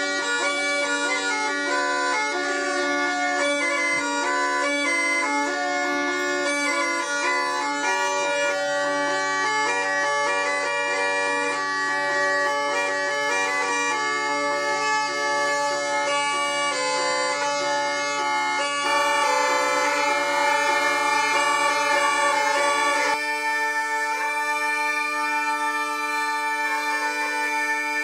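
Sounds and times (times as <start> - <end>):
bagpipe drones: 0.0 - 28.0
bagpipe melody: 0.0 - 28.0.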